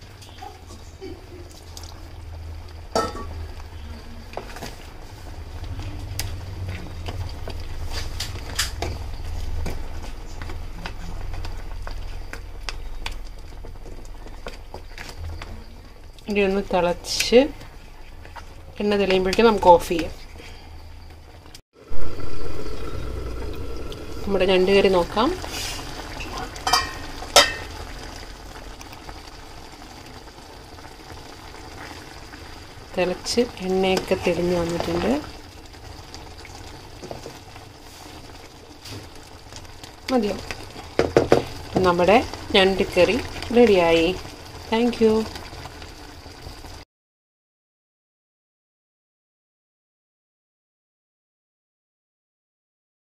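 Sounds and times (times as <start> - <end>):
gravy bubbling in a pan: 0.0 - 46.8
low steady hum: 21.8 - 25.8
pan lid clinking: 26.6 - 27.7
wooden spatula stirring in a pan: 36.6 - 44.2.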